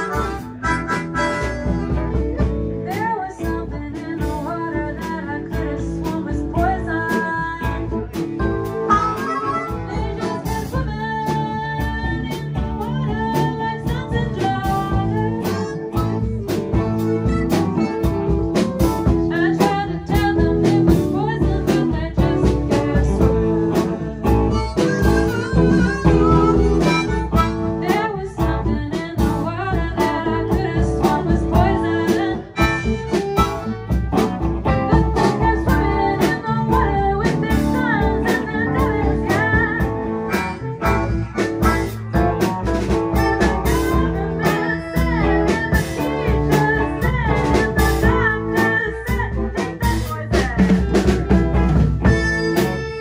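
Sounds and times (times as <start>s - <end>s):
lead guitar bending pitch: 0.0s - 2.8s, 8.0s - 10.9s, 23.0s - 28.0s, 50.9s - 53.0s
drums steady beat: 0.0s - 53.0s
live blues band playing: 0.0s - 53.0s.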